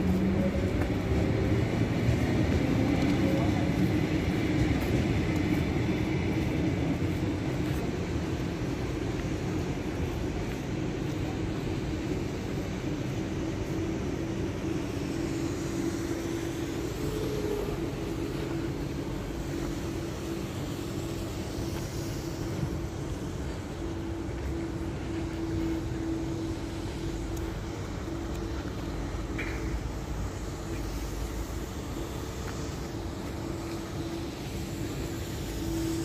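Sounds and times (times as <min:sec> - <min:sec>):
electric train rumbling: 0:00.0 - 0:36.0.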